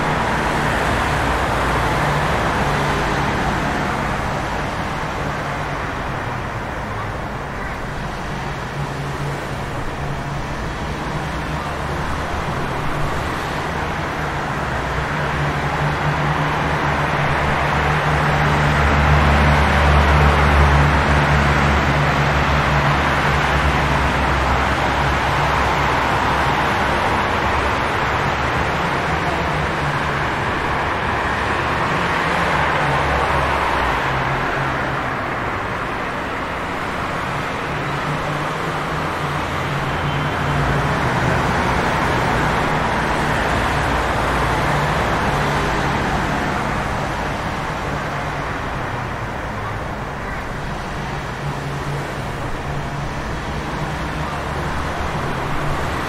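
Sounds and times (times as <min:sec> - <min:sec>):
tyres hissing on wet road: 0:00.0 - 0:56.0.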